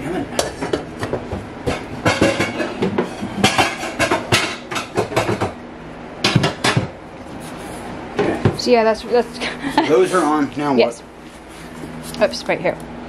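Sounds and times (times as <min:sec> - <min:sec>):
pots and lid clattering: 0:00.3 - 0:05.6.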